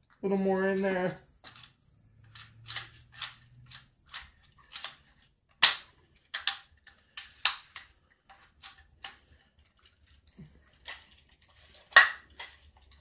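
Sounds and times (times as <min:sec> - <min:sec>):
air rifle clicks and clacks: 0:01.4 - 0:09.4.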